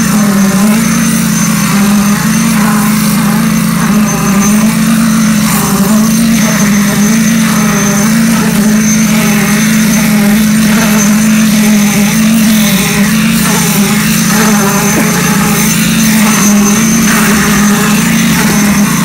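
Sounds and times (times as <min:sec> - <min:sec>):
concrete vibrator engine drone: 0:00.0 - 0:19.0.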